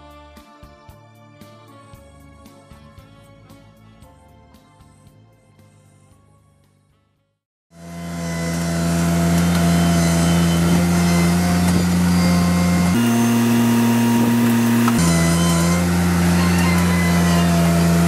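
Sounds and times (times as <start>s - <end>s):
backhoe digging soil: 7.8s - 18.0s
loader engine under hydraulic load: 7.8s - 18.0s.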